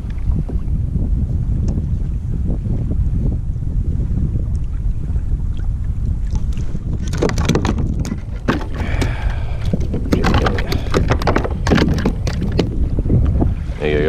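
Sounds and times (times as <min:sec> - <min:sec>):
wind buffeting microphone: 0:00.0 - 0:14.0
knocks and rattles on plastic kayak: 0:06.3 - 0:13.5.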